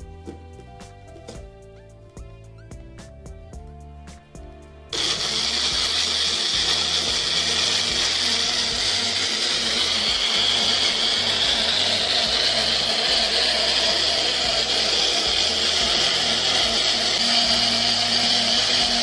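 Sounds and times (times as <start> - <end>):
light background music: 0.0 - 19.0
blender running: 4.9 - 19.0.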